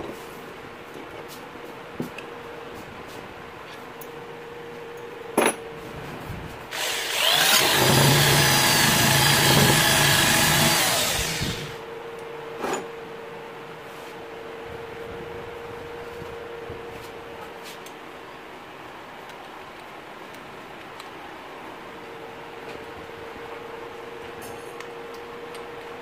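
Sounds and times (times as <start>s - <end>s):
electric drill running: 6.7s - 11.8s.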